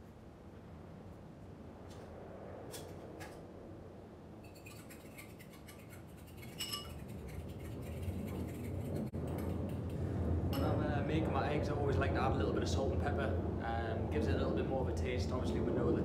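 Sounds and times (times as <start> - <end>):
whisk clinking against bowl: 4.5 - 9.4.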